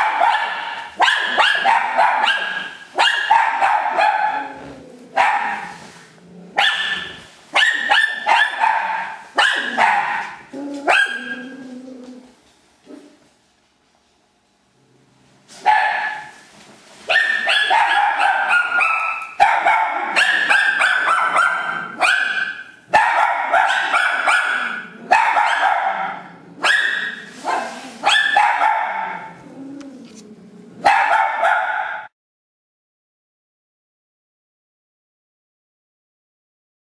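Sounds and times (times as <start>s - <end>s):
dog barking: 0.0s - 5.8s, 6.6s - 11.5s, 15.6s - 16.4s, 17.1s - 29.3s, 30.8s - 32.1s.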